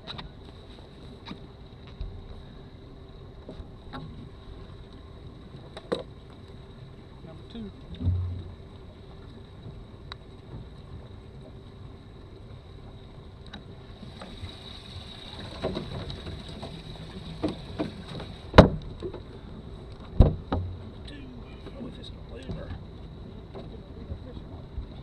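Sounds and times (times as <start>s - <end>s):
faint steady hum: 0.0s - 25.0s
knocks and thumps on boat: 7.6s - 10.8s, 15.2s - 25.0s.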